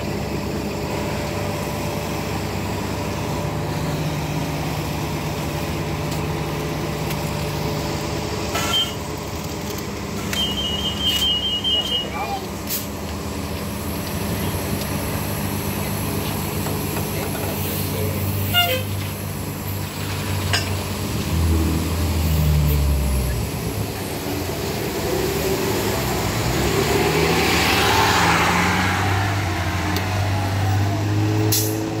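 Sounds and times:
bus diesel engine pulling away: 0:00.0 - 0:32.0
short beep: 0:10.3 - 0:12.2.

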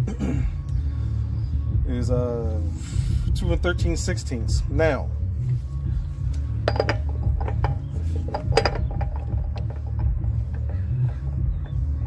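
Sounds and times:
steady low rumble: 0:00.0 - 0:12.0
metal socket clinking: 0:06.7 - 0:10.7.

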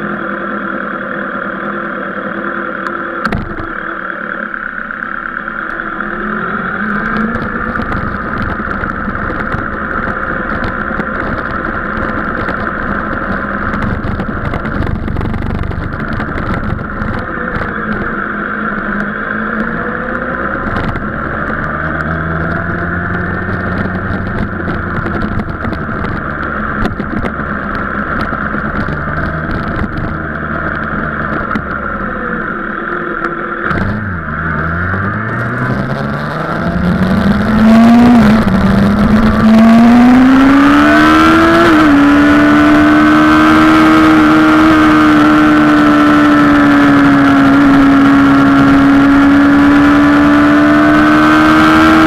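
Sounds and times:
motorcycle engine running: 0:00.0 - 0:52.0.

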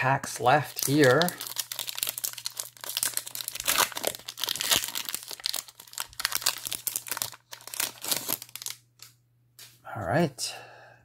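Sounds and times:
wrapper crinkling and tearing: 0:00.6 - 0:08.8.

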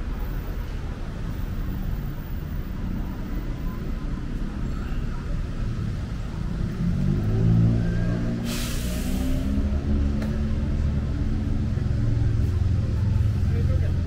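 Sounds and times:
low rumble of passing traffic: 0:00.0 - 0:14.0
approaching vehicle engine: 0:06.0 - 0:14.0.

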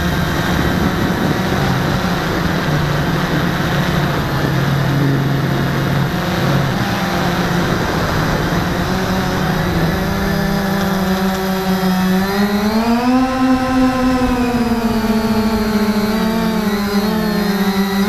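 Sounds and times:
quadcopter motors buzzing: 0:00.0 - 0:18.0.

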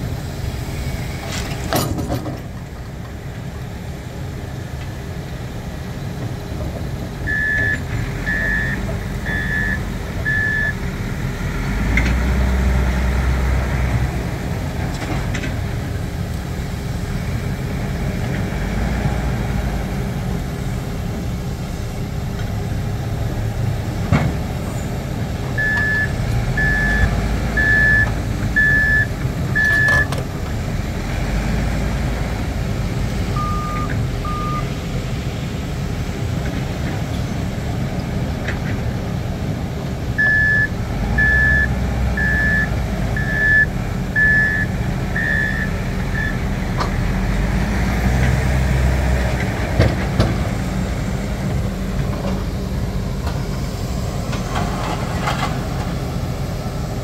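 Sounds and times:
heavy diesel machinery running: 0:00.0 - 0:57.0
travel alarm beeping: 0:07.2 - 0:10.8, 0:25.6 - 0:30.2, 0:33.4 - 0:34.7, 0:40.2 - 0:46.4.

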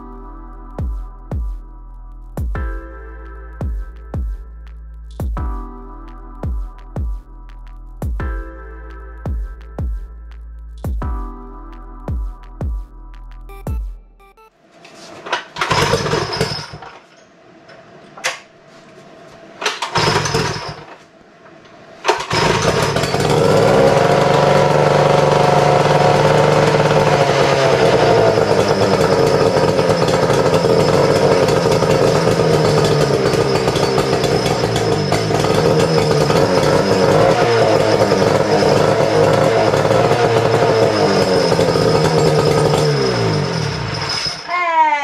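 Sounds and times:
outboard motor running: 0:22.1 - 0:44.1.

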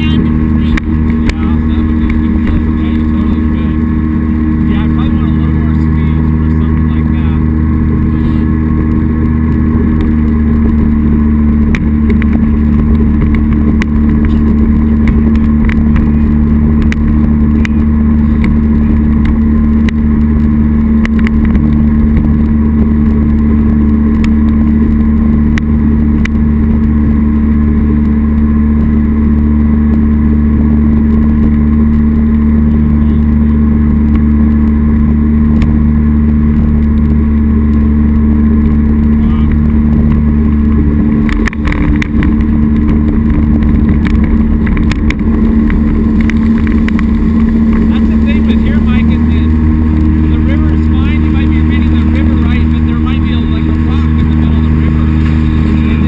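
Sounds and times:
boat engine running: 0:00.0 - 0:56.0
rushing water: 0:34.4 - 0:56.0.

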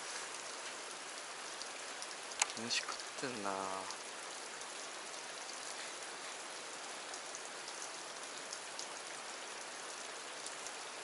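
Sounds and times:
faint light ticks: 0:02.0 - 0:03.2.

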